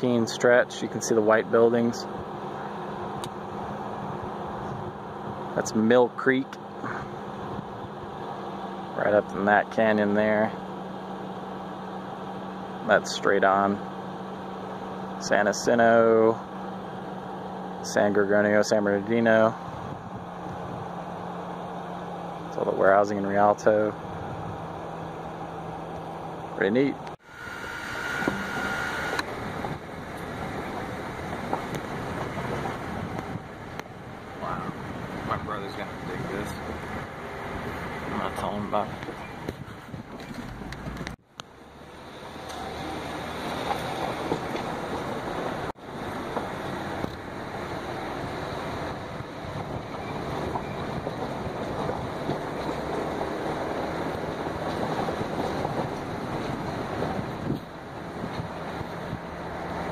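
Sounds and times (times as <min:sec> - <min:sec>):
engine and tyres on gravel: 0:00.0 - 0:59.9
thin steady tone: 0:27.2 - 0:29.2
wind noise: 0:27.5 - 0:41.2, 0:43.5 - 0:59.9.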